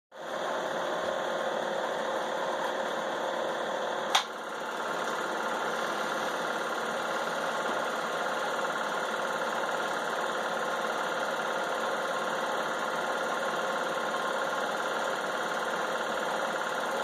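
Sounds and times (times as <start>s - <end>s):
film projector whirring: 0.2s - 17.0s
sharp click: 4.1s - 4.4s.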